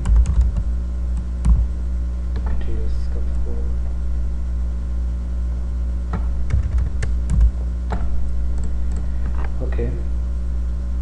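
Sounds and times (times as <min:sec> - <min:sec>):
keyboard keystrokes: 0:00.0 - 0:01.6, 0:06.1 - 0:09.1
steady low hum: 0:00.0 - 0:11.0.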